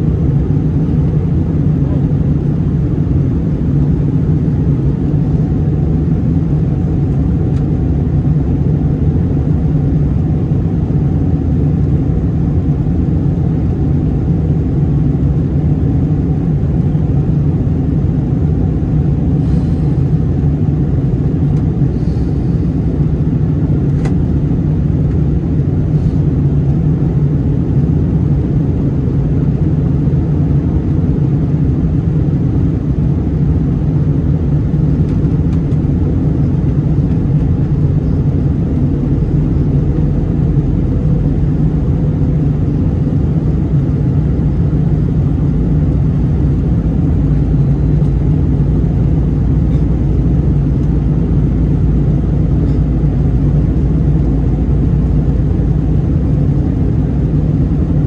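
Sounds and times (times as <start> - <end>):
aircraft cabin roar: 0.0 - 58.0.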